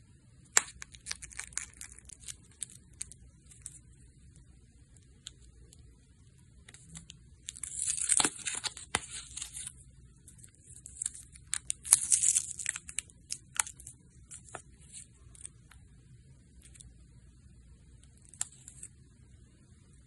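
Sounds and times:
foil wrapper crinkling: 0.6s - 3.8s, 6.9s - 9.8s, 10.4s - 15.5s.

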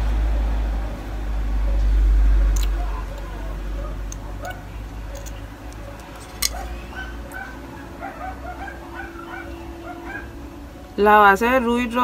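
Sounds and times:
animal whining calls: 2.7s - 10.4s.

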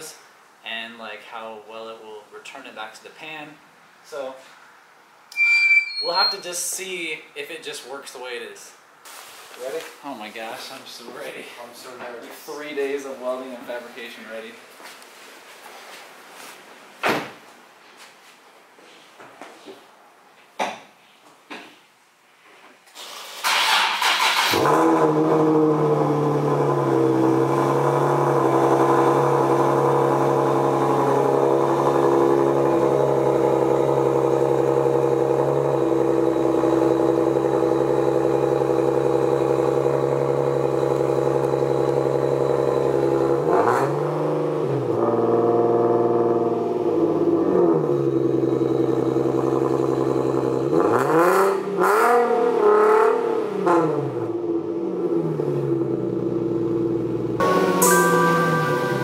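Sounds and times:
car engine starting and idling: 22.9s - 59.0s
engine revving: 23.5s - 59.0s.

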